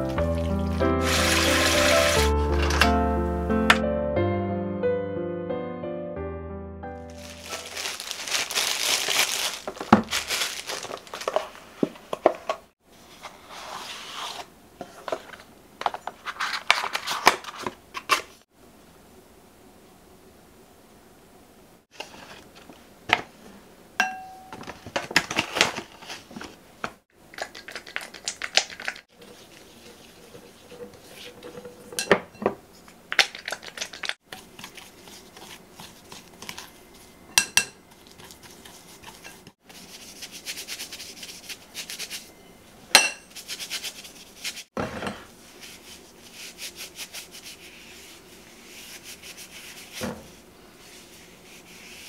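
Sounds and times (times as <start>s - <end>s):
spoon scraping in glass bowl: 29.2s - 39.5s.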